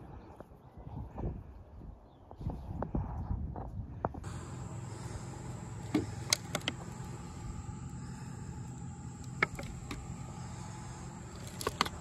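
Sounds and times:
steady low hum: 0:04.0 - 0:12.0
constant high-pitched tone: 0:04.2 - 0:12.0.

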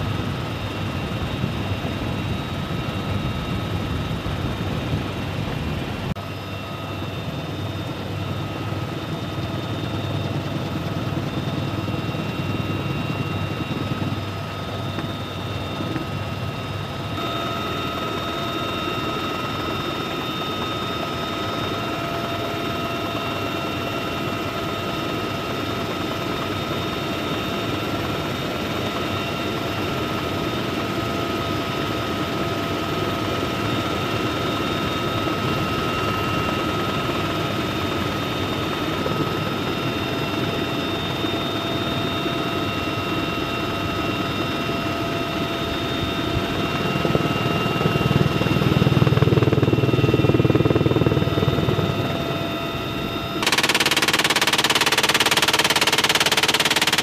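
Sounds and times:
helicopter rotor and engine din: 0:00.0 - 0:57.0.

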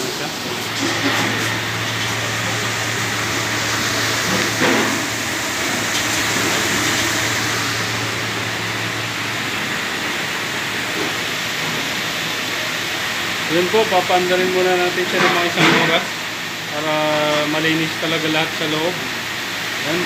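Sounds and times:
dishwasher water spray rushing: 0:00.0 - 0:20.0
low hum: 0:01.3 - 0:12.4.

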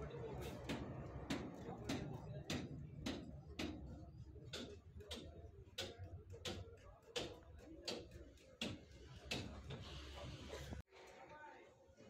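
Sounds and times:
hammer tapping on metal: 0:00.4 - 0:09.7.

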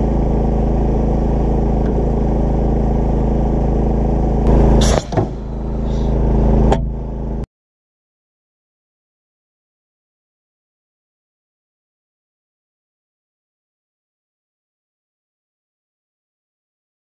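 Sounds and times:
small engine running: 0:00.0 - 0:07.4
air cannon blast: 0:04.5 - 0:06.3
wooden pole hitting steel: 0:04.8 - 0:06.0.

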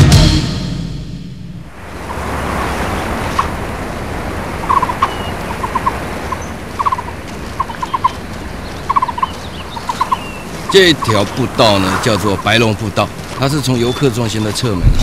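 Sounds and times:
steady rushing noise: 0:01.2 - 0:15.0
animal pulsed calls: 0:04.4 - 0:14.6.

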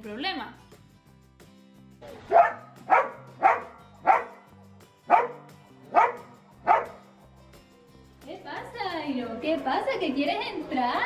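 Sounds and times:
dog barking: 0:02.1 - 0:04.5, 0:05.1 - 0:07.1.

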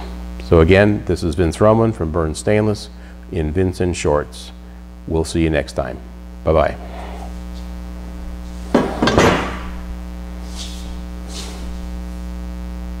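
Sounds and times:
steady electrical hum: 0:00.0 - 0:13.0
metal pipe clanking on workbench: 0:08.8 - 0:09.6.

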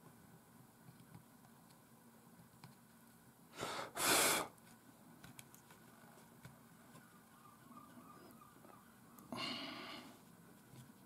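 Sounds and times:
person breathing in and out: 0:03.5 - 0:04.5, 0:09.3 - 0:10.2.

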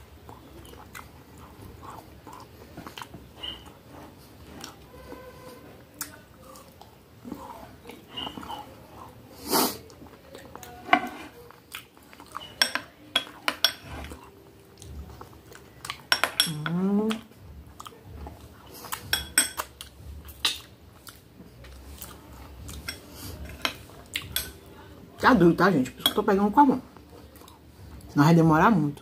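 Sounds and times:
chewing icy dessert: 0:00.1 - 0:10.8, 0:11.4 - 0:16.1, 0:17.3 - 0:24.6, 0:26.9 - 0:28.1
spoon scraping glass bowl: 0:10.8 - 0:11.4
person humming: 0:16.5 - 0:17.2.

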